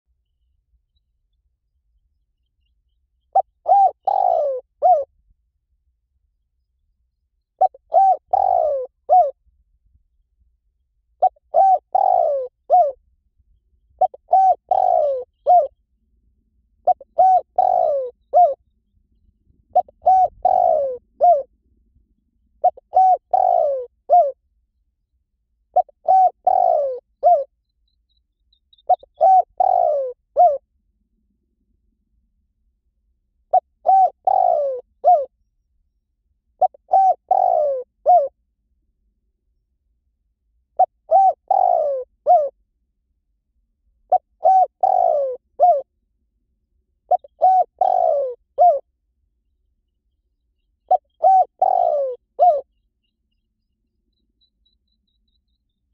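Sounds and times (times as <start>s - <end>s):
dove cooing: 3.3s - 5.1s, 7.6s - 9.4s, 11.2s - 13.0s, 14.0s - 15.8s, 16.8s - 18.6s, 19.7s - 21.5s, 22.6s - 24.4s, 25.7s - 27.5s, 28.8s - 30.6s, 33.5s - 35.3s, 36.6s - 38.4s, 40.8s - 42.6s, 44.1s - 45.9s, 47.1s - 48.8s, 50.8s - 52.8s.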